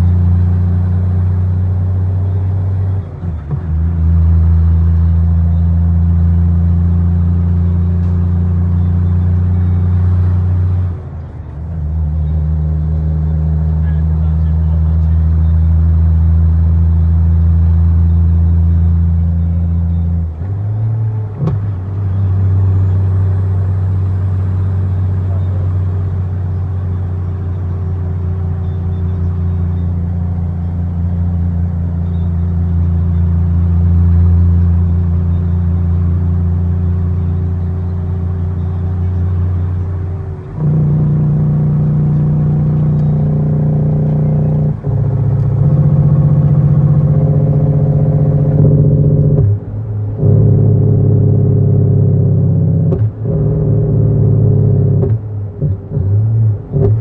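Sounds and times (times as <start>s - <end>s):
diesel truck engine drone: 0.0s - 57.0s.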